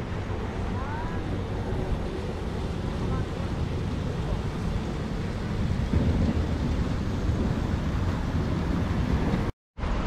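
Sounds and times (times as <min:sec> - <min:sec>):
street ambience: 0:00.0 - 0:10.0
wind buffeting microphone: 0:00.0 - 0:10.0.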